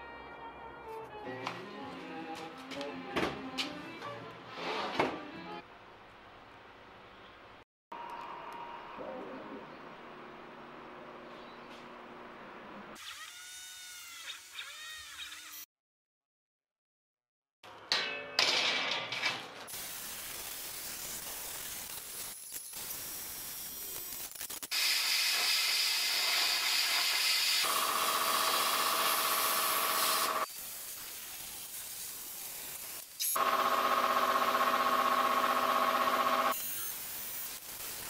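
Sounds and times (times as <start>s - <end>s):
plasma cutter hissing: 19.7s - 27.8s, 28.4s - 33.4s, 36.5s - 38.0s.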